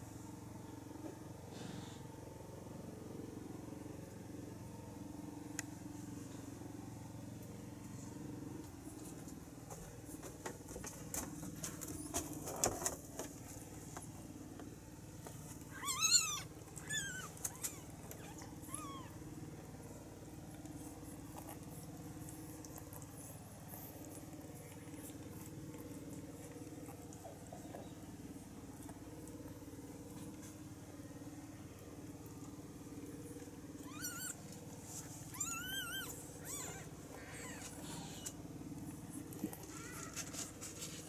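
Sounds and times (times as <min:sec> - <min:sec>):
steady low hum: 0:00.0 - 0:41.0
kittens mewing: 0:15.7 - 0:19.3, 0:33.8 - 0:34.5, 0:35.2 - 0:38.4, 0:39.3 - 0:40.6.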